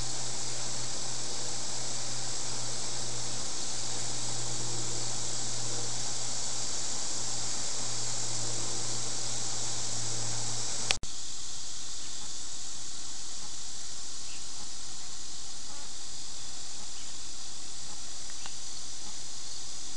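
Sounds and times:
low hum: 0.0 - 19.9
steady hiss: 0.0 - 19.9
click: 18.3 - 18.6.

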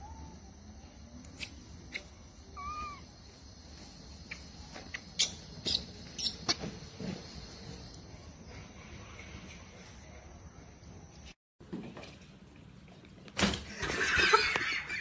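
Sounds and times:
baby monkey squeaking: 2.6 - 3.0, 4.9 - 6.6.

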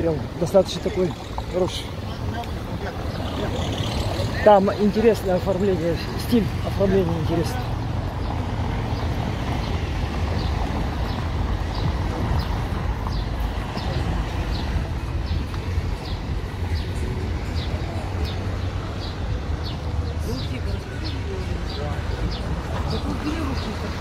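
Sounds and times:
traffic rumble: 0.0 - 24.0.

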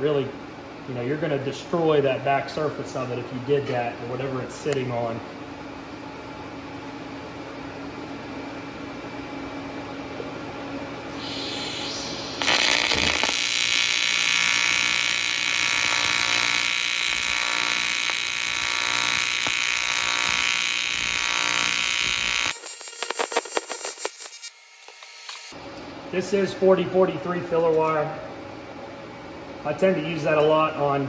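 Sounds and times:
welding arc buzzing: 11.1 - 25.6.

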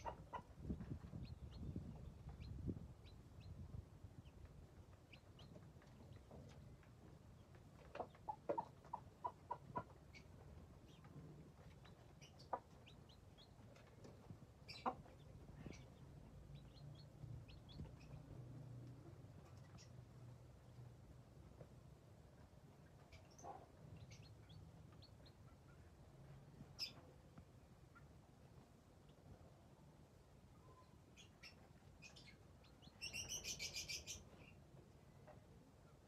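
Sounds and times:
hen clucking: 0.0 - 3.6, 4.2 - 18.4
chicks peeping: 0.0 - 20.8, 22.4 - 29.4, 30.0 - 35.4.

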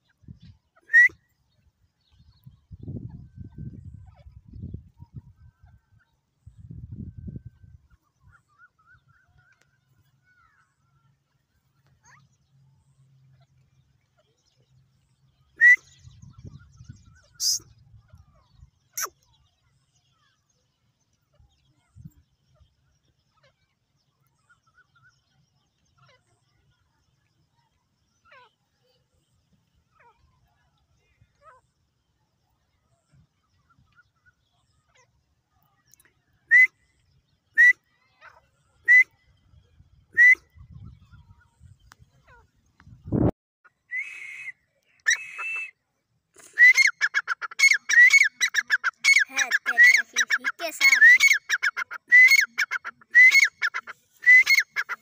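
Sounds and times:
francolin calling: 17.3 - 17.7, 46.4 - 55.0.

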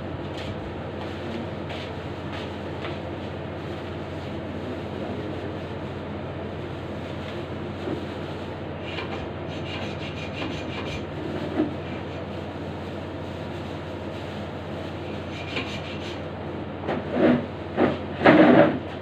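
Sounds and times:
steady low hum: 0.0 - 19.0
hand saw rasping: 9.0 - 11.0, 15.3 - 16.2.

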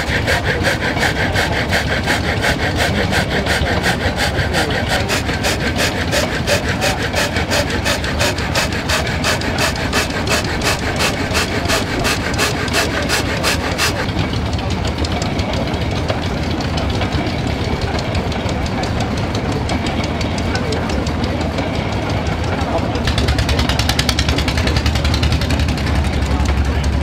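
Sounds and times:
woodworking machine rasping through board: 0.0 - 14.1
stationary engine running: 0.0 - 20.6.

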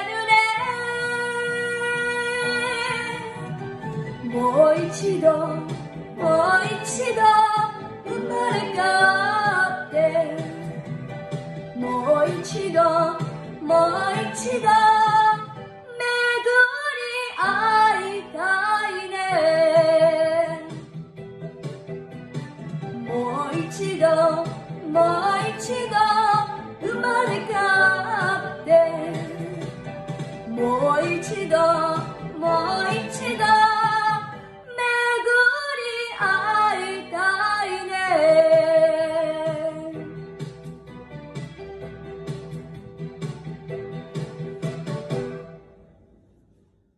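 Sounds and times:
karaoke backing track: 0.0 - 45.7
girl singing: 23.1 - 29.5, 30.5 - 39.9.

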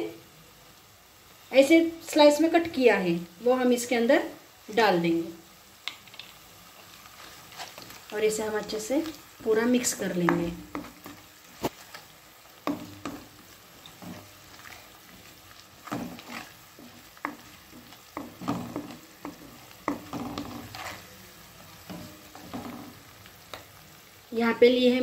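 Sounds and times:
onions sizzling in oil: 0.0 - 25.0
spatula scraping a pan: 7.0 - 8.1, 9.8 - 23.6.

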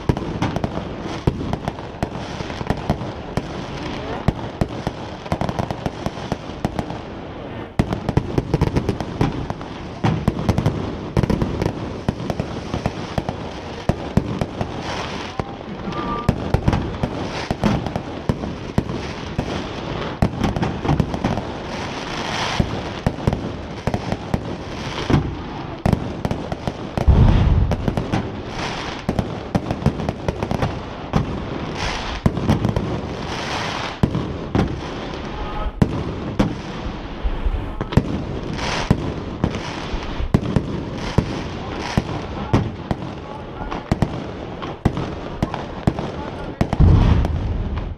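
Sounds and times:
fireworks bangs and crackling: 0.0 - 47.9
deep firework boom: 27.0 - 29.1, 46.7 - 47.9.

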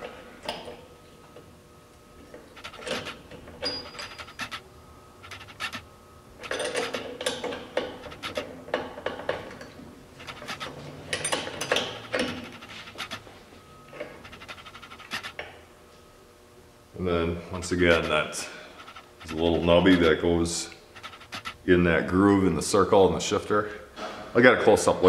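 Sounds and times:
metal gears clinking and scraping: 2.6 - 4.6, 6.4 - 8.4, 10.2 - 13.2.

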